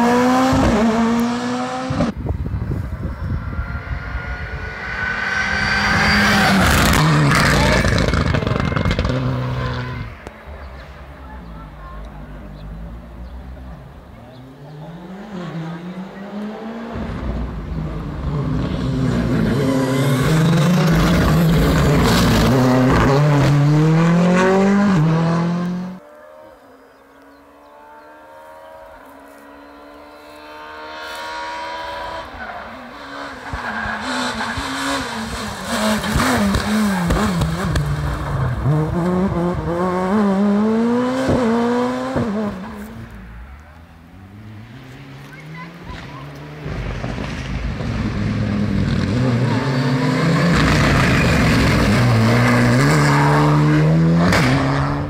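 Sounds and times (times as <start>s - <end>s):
distant engine climbing in pitch: 0.0s - 55.0s
rally car engine passing: 0.0s - 55.0s
rally car sliding on gravel: 44.6s - 53.8s.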